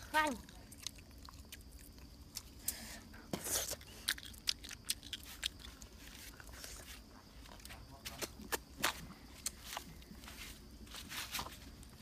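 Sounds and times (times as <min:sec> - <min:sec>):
chewing crunchy grilled fish: 0:00.2 - 0:08.7.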